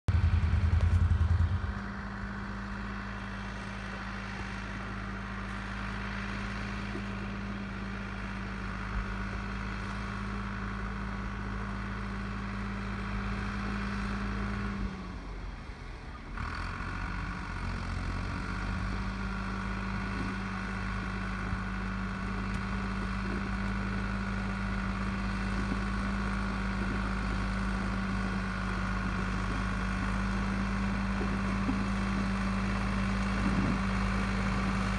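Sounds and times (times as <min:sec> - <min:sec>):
low rumble: 0:00.0 - 0:02.9
tractor diesel engine running: 0:00.0 - 0:34.9.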